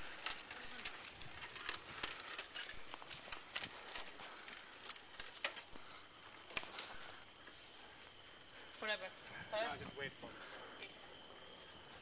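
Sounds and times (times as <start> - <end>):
bicycle clicks and rattles: 0.0 - 7.0
insects droning: 0.0 - 12.0.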